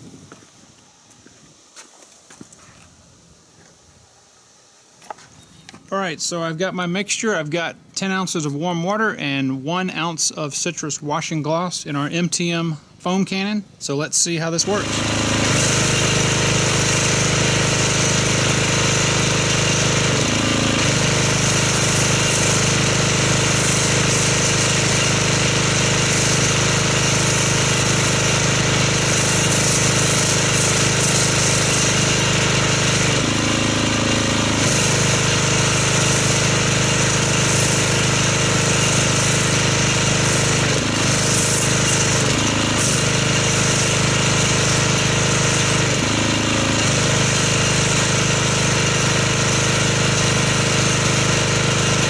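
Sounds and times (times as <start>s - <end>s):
pressure washer pump humming: 14.2s - 52.0s
spray hissing: 14.6s - 52.0s.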